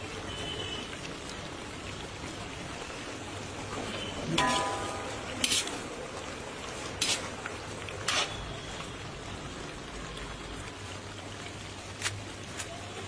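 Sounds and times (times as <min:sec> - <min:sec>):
gravy sizzling and bubbling: 0:00.0 - 0:13.0
metal spatula scraping pan: 0:04.3 - 0:05.8, 0:07.0 - 0:07.3.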